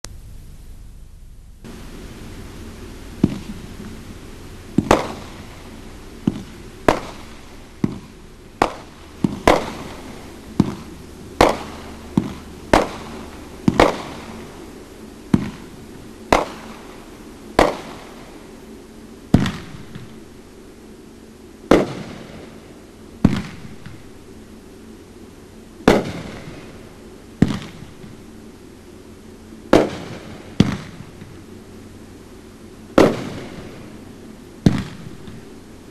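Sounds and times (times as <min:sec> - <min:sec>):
fireworks bangs with echo: 0:03.2 - 0:04.0, 0:04.6 - 0:18.5, 0:19.3 - 0:20.3, 0:21.7 - 0:24.2, 0:25.8 - 0:28.2, 0:29.7 - 0:31.4, 0:33.0 - 0:33.9, 0:34.6 - 0:35.6.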